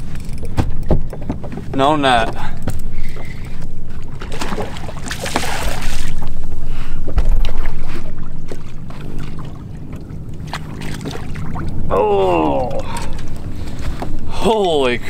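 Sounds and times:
water splashing: 3.0s - 15.0s.

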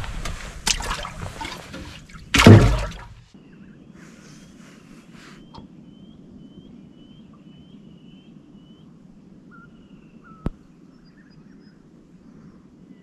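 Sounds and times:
low background rumble: 0.0s - 5.2s
bird chirping: 3.4s - 8.9s.

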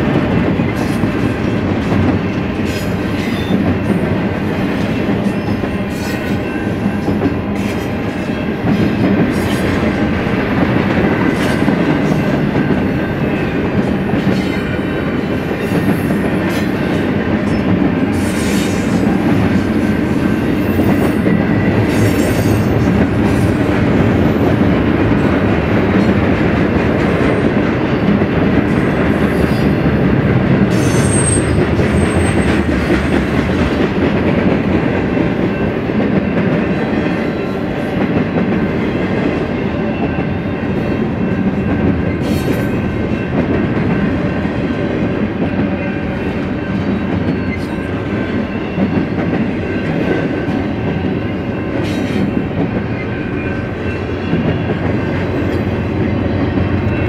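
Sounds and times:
freight train wheel rumble: 0.0s - 57.0s
wheel squeal on rail: 2.6s - 4.0s, 14.2s - 14.8s, 17.4s - 19.4s, 20.2s - 23.4s, 30.7s - 33.2s, 39.8s - 43.3s, 45.7s - 57.0s.

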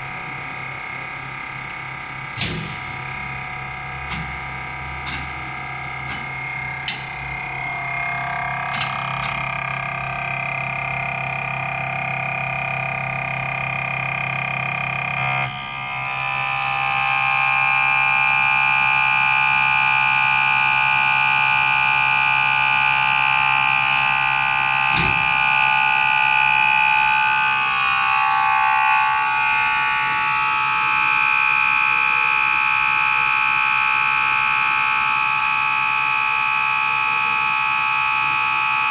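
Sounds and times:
test bench high-pitched whine: 0.0s - 38.9s.

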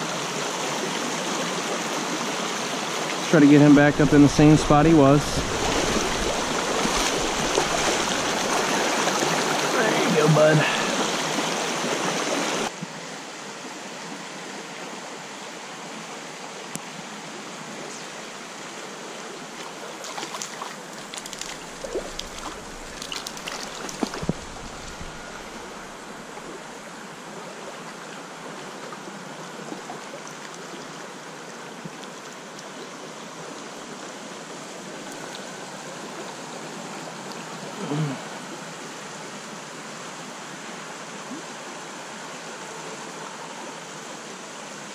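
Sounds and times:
stream running over riffles: 0.0s - 44.9s
small clicks and rustles: 20.1s - 25.2s.

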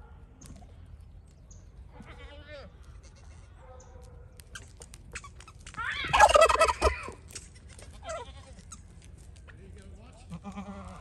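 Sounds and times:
turkey gobbling: 6.1s - 7.0s.

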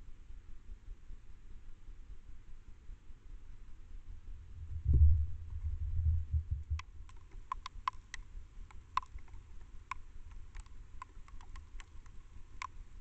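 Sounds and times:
low rumble: 4.0s - 7.1s
icy snow ticking on camera housing: 6.5s - 13.0s.

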